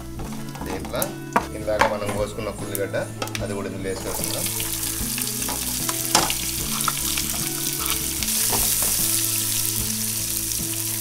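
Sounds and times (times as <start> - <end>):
wooden spatula scraping pan: 0.0 - 10.1
onion sizzling in oil: 0.0 - 11.0.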